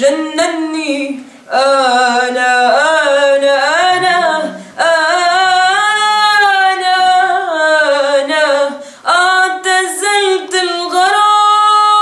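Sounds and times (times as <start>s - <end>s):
woman singing unaccompanied: 0.0s - 12.0s
breath: 1.2s - 1.5s, 4.6s - 4.8s, 8.8s - 9.1s.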